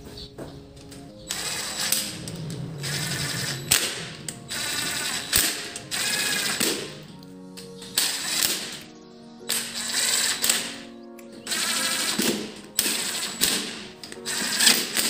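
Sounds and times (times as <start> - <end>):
cordless drill whirring: 1.3 - 6.9, 8.0 - 8.7, 9.5 - 10.7, 11.5 - 15.0.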